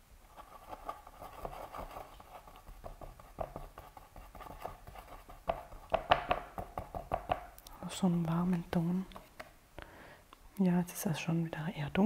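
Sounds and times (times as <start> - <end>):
paintbrush tapping on palette: 2.6 - 7.5.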